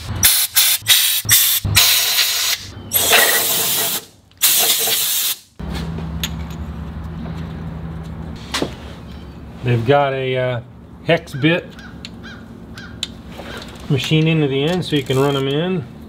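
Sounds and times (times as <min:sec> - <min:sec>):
compressed air blasts hissing: 0:00.0 - 0:05.5
steady low hum: 0:05.6 - 0:16.0.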